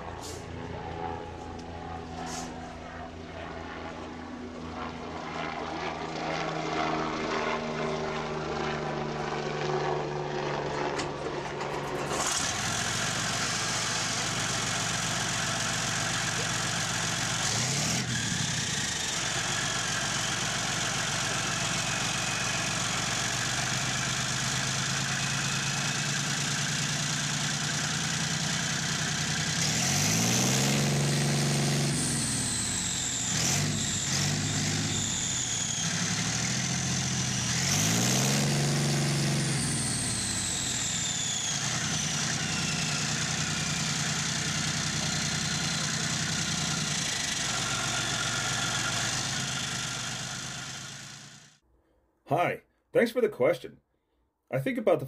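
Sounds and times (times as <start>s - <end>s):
tank diesel engine revving: 11.1s - 51.6s.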